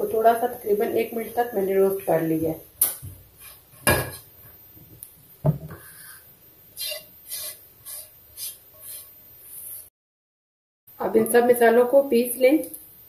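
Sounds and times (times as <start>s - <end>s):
spatula scraping pan: 3.3s - 4.4s, 5.7s - 9.9s.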